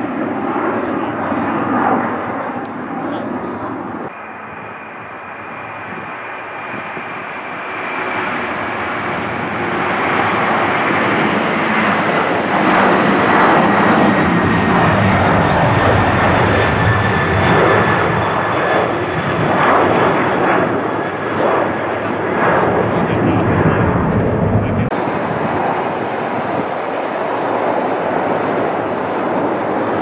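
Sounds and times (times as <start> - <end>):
jet engines at takeoff: 0.0 - 30.0
thin whine: 1.8 - 12.0.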